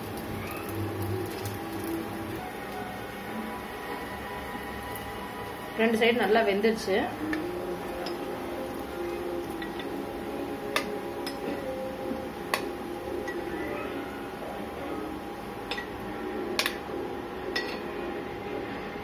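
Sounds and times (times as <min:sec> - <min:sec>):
metal spoon clinking on pan: 0:08.0 - 0:08.2, 0:09.6 - 0:10.0, 0:10.7 - 0:11.6, 0:15.7 - 0:16.0, 0:17.5 - 0:17.9.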